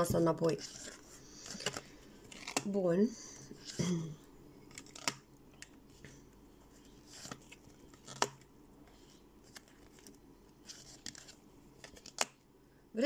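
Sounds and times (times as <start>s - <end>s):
cards clicking and swishing: 7.0s - 12.4s.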